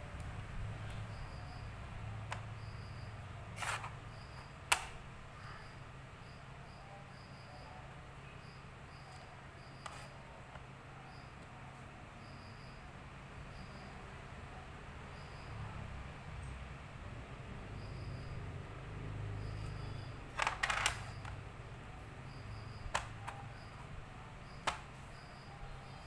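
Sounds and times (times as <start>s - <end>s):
faint high chirps: 17.6s - 20.3s
game pieces clicking on wooden board: 20.3s - 21.4s.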